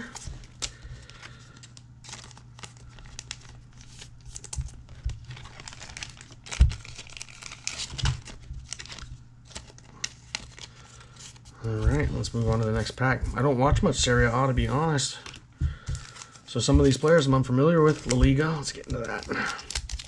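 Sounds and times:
plastic sleeves crinkling: 0:00.0 - 0:20.0.

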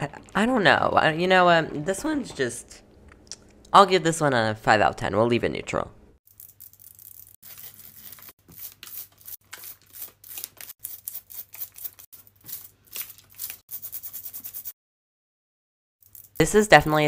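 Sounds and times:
fingernails scratching rhinestones: 0:13.4 - 0:14.7.

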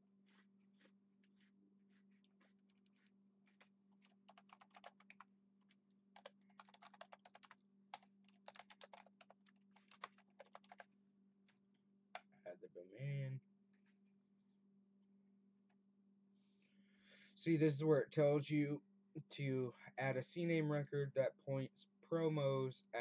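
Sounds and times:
typing on a computer keyboard: 0:04.0 - 0:05.3, 0:06.2 - 0:10.9.

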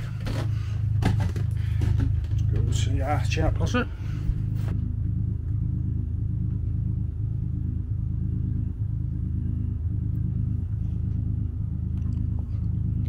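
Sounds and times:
engine running low rumble: 0:00.0 - 0:13.0.

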